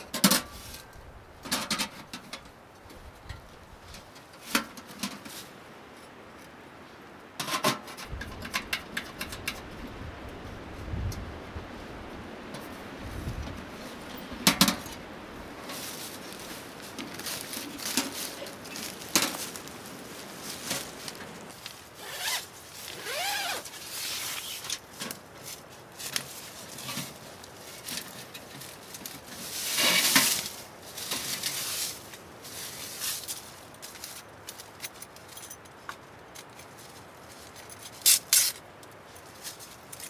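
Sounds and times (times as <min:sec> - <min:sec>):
rustling and handling noise: 0:00.0 - 0:40.0
zipper being pulled: 0:22.0 - 0:24.6.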